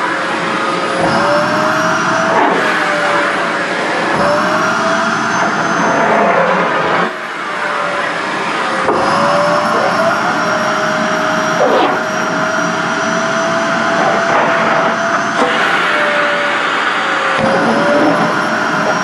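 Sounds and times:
stick vacuum cleaner running: 0.0s - 19.0s.

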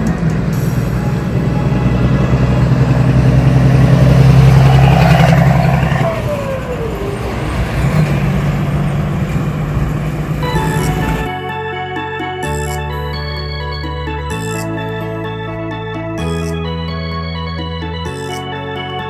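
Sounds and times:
quieter steady engine note: 0.0s - 11.5s
diesel truck driving past: 0.0s - 11.6s
falling whine: 0.4s - 11.3s.

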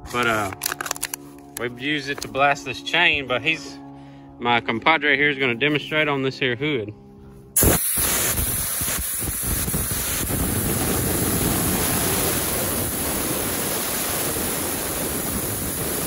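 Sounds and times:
sandblaster hissing: 7.6s - 16.0s.

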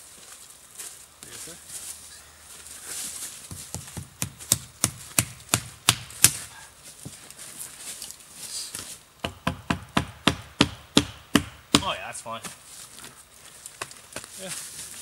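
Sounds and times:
axe pounding wooden stake: 3.5s - 6.5s, 9.2s - 12.0s.

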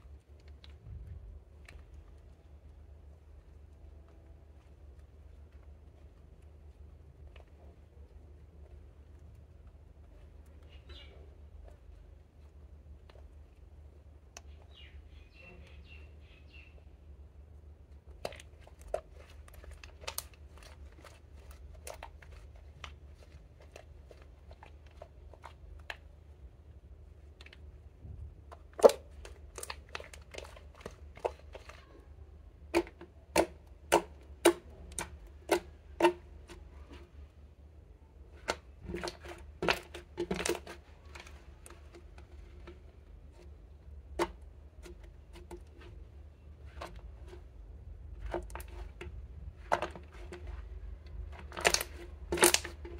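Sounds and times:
hands squeezing slime: 18.1s - 26.2s, 28.5s - 32.0s.

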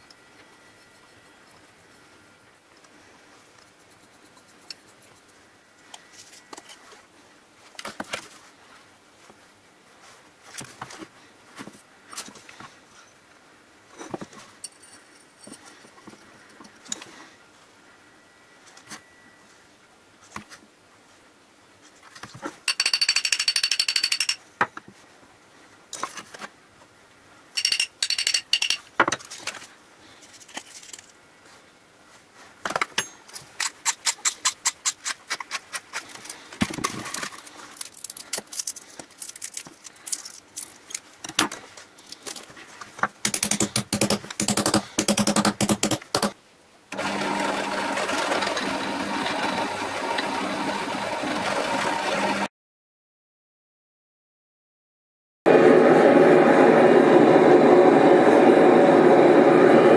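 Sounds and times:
drill press motor drilling: 47.0s - 52.5s.

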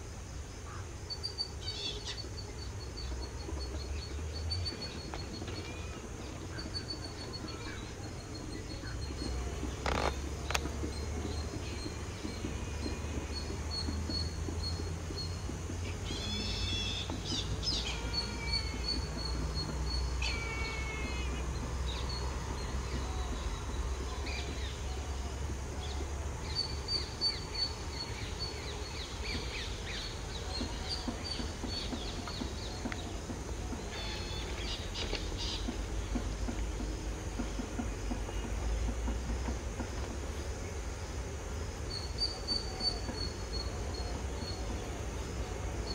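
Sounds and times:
birds chirping: 0.0s - 45.9s.

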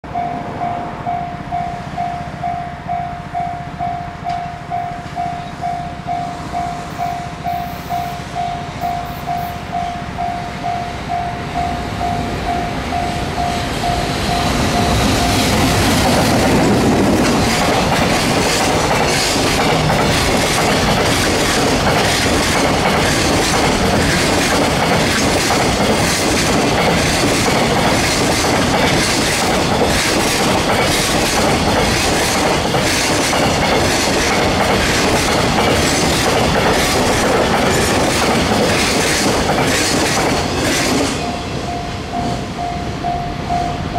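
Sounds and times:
freight train passing: 0.0s - 43.9s
level-crossing warning bell: 0.0s - 43.9s
train wheels clacking over rail joints: 13.0s - 41.4s.

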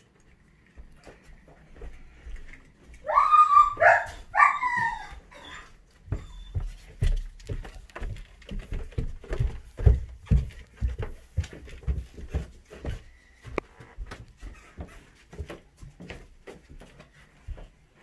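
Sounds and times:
footsteps on carpeted stairs: 0.6s - 18.0s
small dog yelping: 3.0s - 6.6s.

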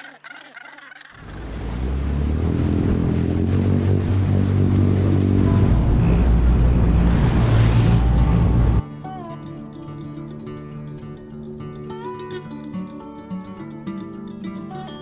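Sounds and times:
wake churning and splashing: 0.0s - 8.8s
boat engine running: 1.1s - 8.8s
wind on microphone: 2.3s - 8.8s.

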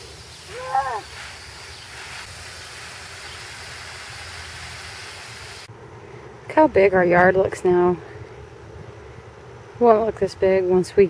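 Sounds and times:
garden hose spraying water: 0.0s - 5.7s
child calling: 0.5s - 1.1s.

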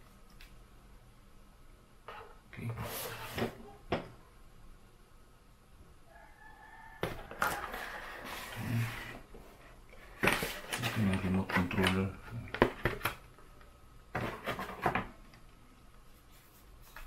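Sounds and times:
paper tray scraping cardboard box: 7.5s - 9.2s.

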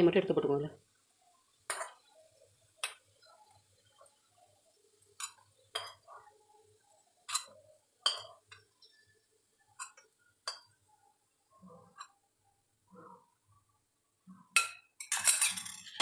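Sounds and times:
metal spoon clinking on metal pan: 1.7s - 2.2s, 2.8s - 3.3s, 5.2s - 6.1s, 7.3s - 9.0s, 9.7s - 10.8s, 14.5s - 16.0s.

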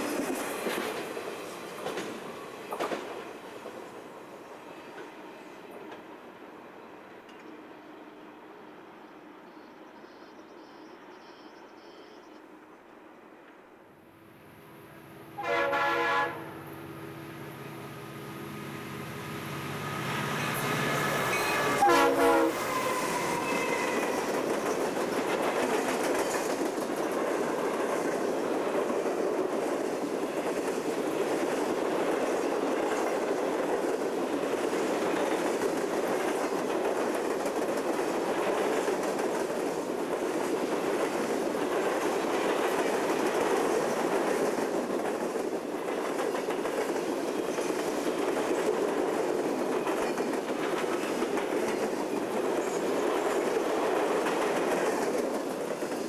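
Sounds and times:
train wheels clickety-clack: 0.0s - 4.0s, 4.8s - 6.2s, 20.3s - 56.0s
diesel locomotive engine: 14.0s - 56.0s
locomotive horn blasts: 15.4s - 16.6s, 21.3s - 24.0s.

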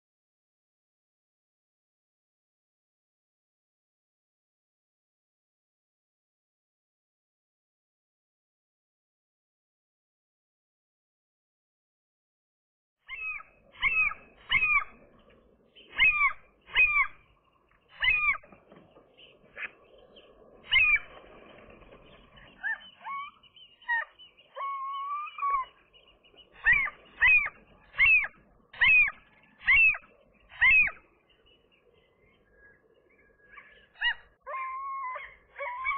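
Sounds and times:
gull calling: 13.1s - 31.2s, 33.4s - 35.9s.

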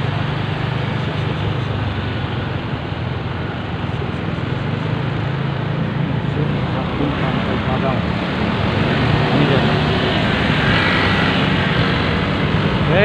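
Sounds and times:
road noise: 0.0s - 13.0s
vehicle engine drone: 0.0s - 13.0s.

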